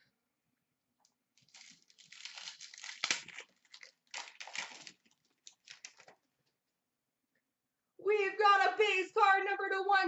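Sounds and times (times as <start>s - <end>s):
cards and wrapper rustling: 1.4s - 6.3s.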